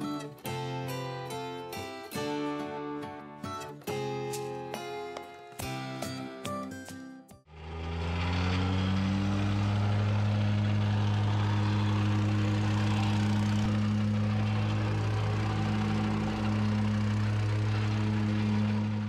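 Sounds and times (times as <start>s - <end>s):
plate compactor engine humming: 7.5s - 19.0s.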